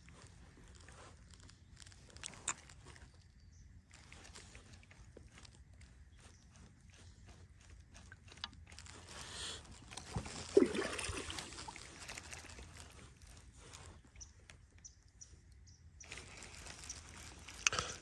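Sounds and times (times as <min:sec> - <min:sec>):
water sloshing around a kayak: 0:00.0 - 0:14.8
water splash: 0:10.2 - 0:12.5.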